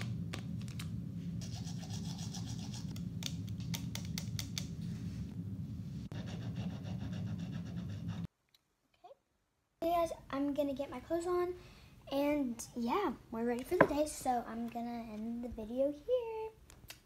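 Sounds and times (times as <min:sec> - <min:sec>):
toothbrush scrubbing teeth: 0:01.4 - 0:03.0.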